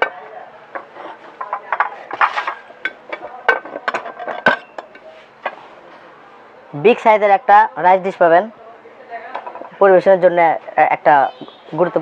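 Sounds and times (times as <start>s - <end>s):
ceramic plates clinking: 0.0s - 5.1s.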